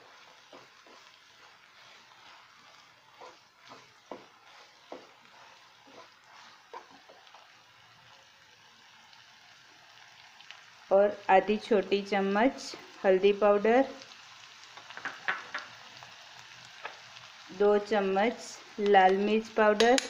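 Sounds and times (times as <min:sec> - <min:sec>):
wooden spatula scraping a pan: 0:00.0 - 0:07.6
vegetables sizzling in oil: 0:00.0 - 0:20.0.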